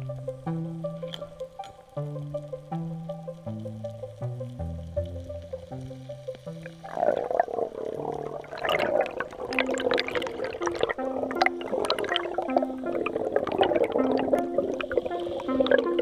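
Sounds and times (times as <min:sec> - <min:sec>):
low background music notes: 0:00.0 - 0:16.0
sharp clicks and crackles: 0:00.0 - 0:16.0
underwater rushing and bubbling: 0:00.0 - 0:16.0.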